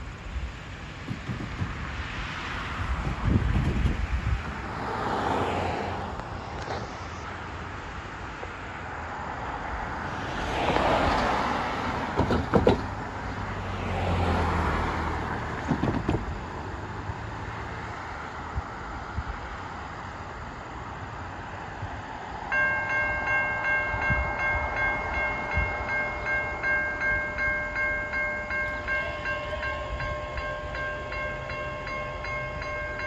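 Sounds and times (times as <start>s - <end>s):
vehicles driving past: 0.0s - 33.0s
tyres thumping over rails: 1.0s - 2.0s, 12.0s - 13.0s, 15.4s - 16.7s.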